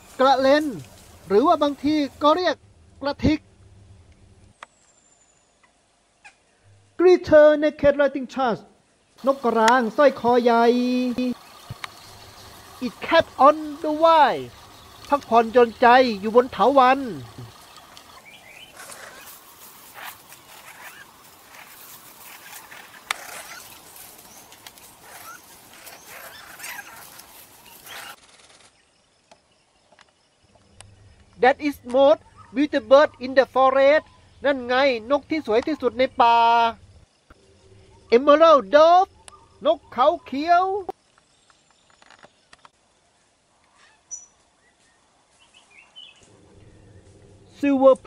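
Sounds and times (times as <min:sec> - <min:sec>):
birds chirping and calling: 0:09.2 - 0:28.2, 0:30.5 - 0:36.4, 0:37.5 - 0:40.9
faint ticks: 0:11.4 - 0:12.8, 0:17.2 - 0:18.2
wing flutters: 0:17.0 - 0:29.0
short high bird chirp: 0:43.8 - 0:44.4.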